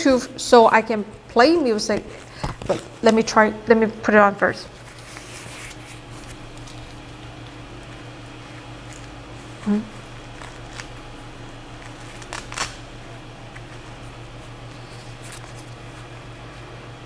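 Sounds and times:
low hum: 0.0s - 17.0s
fabric mask rustling: 4.7s - 9.5s.

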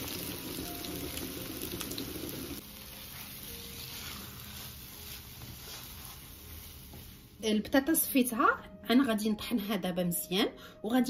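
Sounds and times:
faint sizzle in frying pan: 0.0s - 8.1s
spatula stirring: 2.6s - 7.4s.

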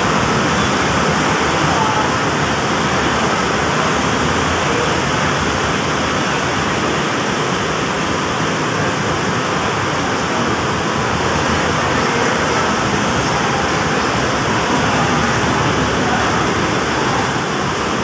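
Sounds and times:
bus terminal traffic roar: 0.0s - 18.0s.

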